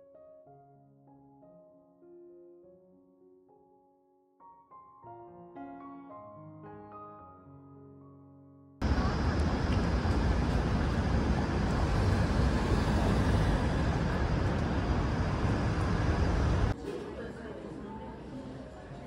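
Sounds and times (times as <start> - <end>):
road traffic rumble: 8.8 - 16.8.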